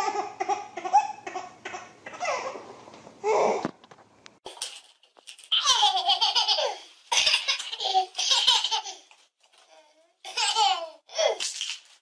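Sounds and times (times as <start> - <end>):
toddler laughing: 5.6 - 9.1, 10.3 - 11.4.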